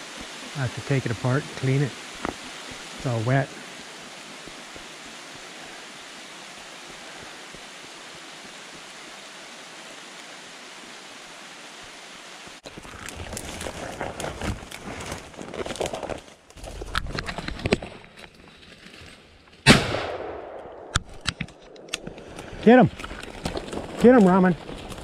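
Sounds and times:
brush crackling and rustling: 0.0s - 7.4s, 12.4s - 19.7s, 21.1s - 25.0s
rain on leaves: 0.0s - 19.0s, 21.9s - 25.0s.

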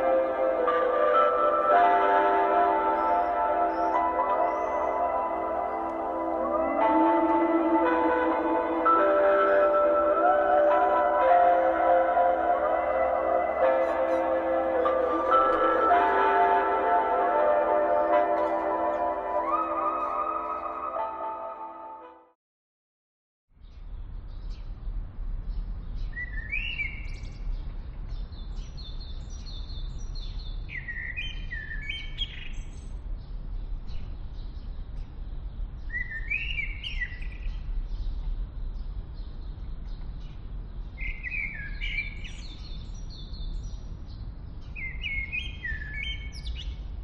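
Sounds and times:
songbird chirping: 0.0s - 22.0s, 25.7s - 47.0s.

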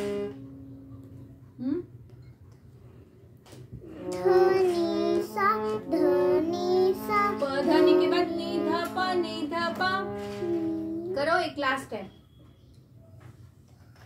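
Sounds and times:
harmonium held notes: 3.8s - 11.1s
child singing scale exercise: 3.8s - 11.2s.

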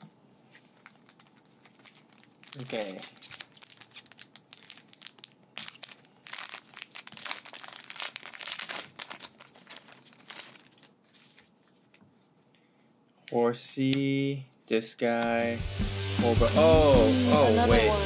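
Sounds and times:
foil wrapper crinkling: 0.5s - 11.6s.

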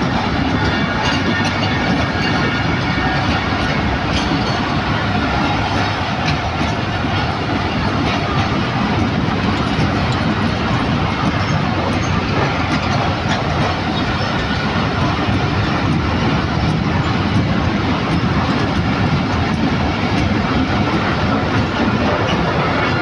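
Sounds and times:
freight train rumbling and rattling: 0.0s - 23.0s.

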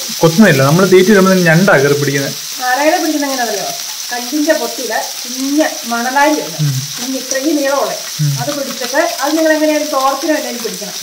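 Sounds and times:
fish sizzling in oil: 0.0s - 11.0s
woman talking: 2.6s - 11.0s.

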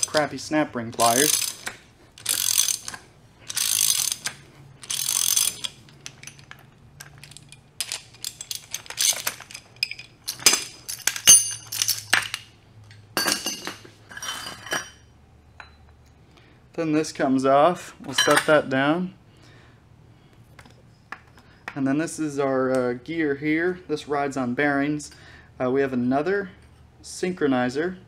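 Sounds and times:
ratchet wrench clicking: 1.0s - 12.3s
metal clicks and clinks: 1.0s - 15.0s.

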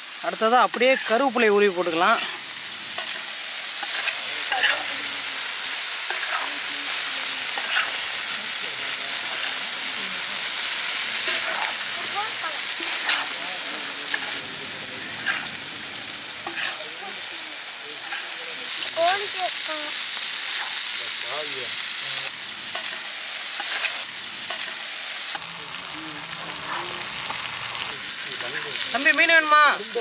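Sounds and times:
fish sizzling in oil: 0.0s - 30.0s
metal spatula scraping pan: 0.9s - 1.3s, 12.8s - 13.4s, 16.4s - 16.8s.

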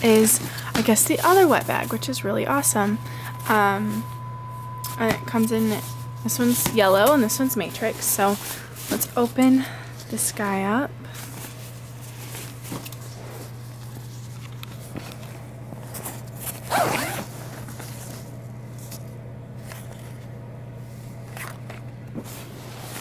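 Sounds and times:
steady low hum: 0.0s - 23.0s
bag zipper being pulled open: 16.7s - 17.3s.

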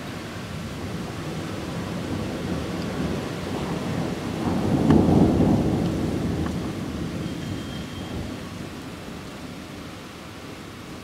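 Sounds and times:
thunder rumbling: 0.5s - 9.3s.

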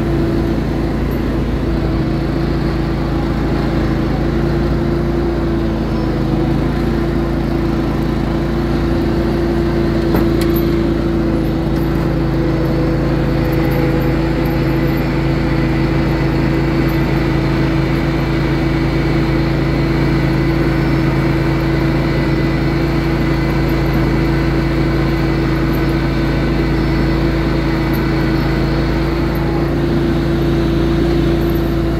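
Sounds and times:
lawn tractor engine running: 0.0s - 31.9s.

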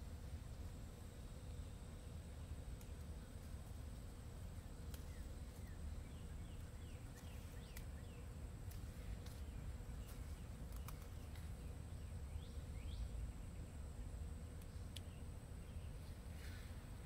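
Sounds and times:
small birds chirping: 1.4s - 17.0s
sharp clicks: 10.6s - 11.3s.

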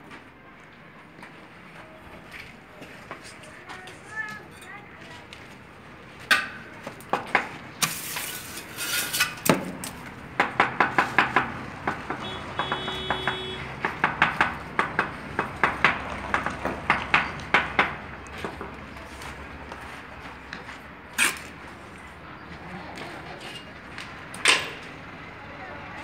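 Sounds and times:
trowel scraping sweep: 7.8s - 9.5s.

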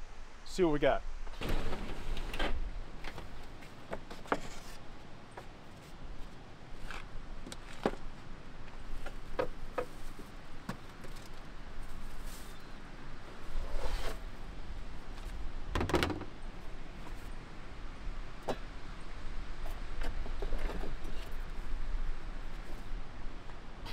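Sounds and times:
camp kitchen gear clicking and knocking: 15.7s - 16.3s.

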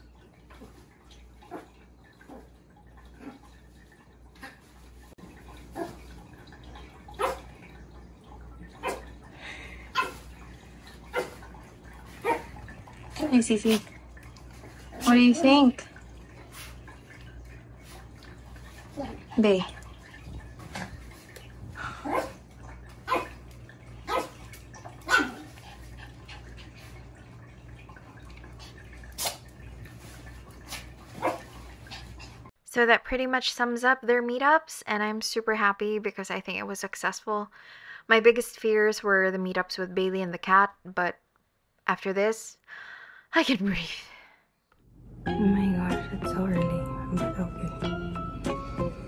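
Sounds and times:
dog barking: 7.1s - 7.5s, 8.8s - 9.1s, 9.9s - 10.2s, 11.1s - 11.5s, 12.2s - 12.5s, 22.0s - 22.4s, 23.1s - 23.4s, 24.1s - 24.4s, 25.0s - 25.5s, 31.2s - 31.5s.

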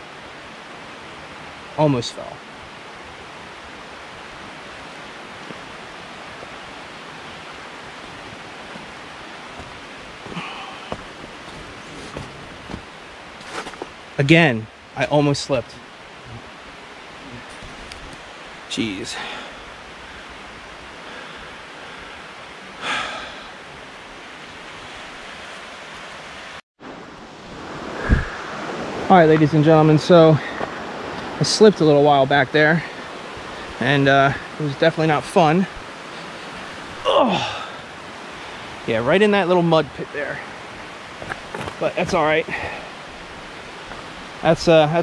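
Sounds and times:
creek water rushing: 0.0s - 45.0s
faint footsteps: 8.1s - 14.0s, 41.2s - 41.9s, 42.6s - 44.3s
footstep scuff: 9.6s - 13.9s.

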